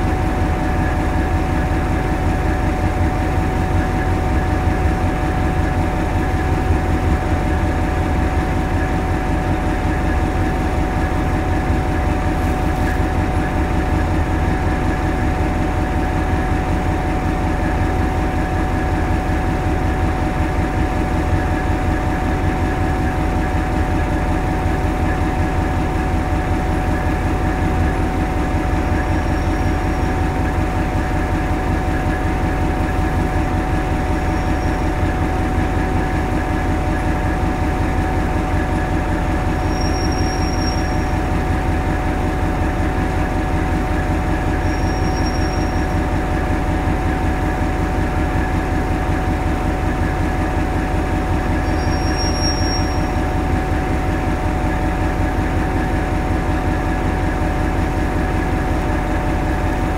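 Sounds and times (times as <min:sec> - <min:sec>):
diesel engine rumbling: 0:00.0 - 0:59.9.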